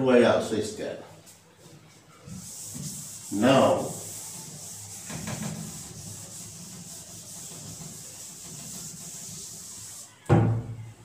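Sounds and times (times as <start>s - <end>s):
duster rubbing on blackboard: 1.6s - 10.1s.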